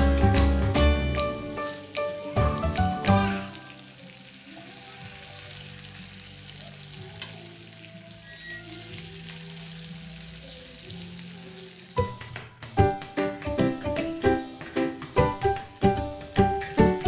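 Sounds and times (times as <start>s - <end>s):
fish sizzling on grill: 0.0s - 13.1s.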